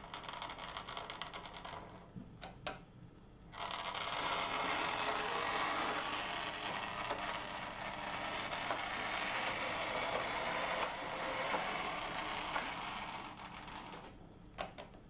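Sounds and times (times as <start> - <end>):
model train motor whirring: 3.6 - 13.9.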